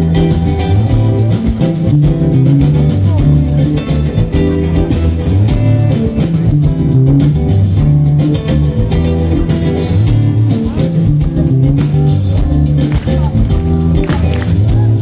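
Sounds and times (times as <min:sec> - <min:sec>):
electric bass line: 0:00.0 - 0:15.0.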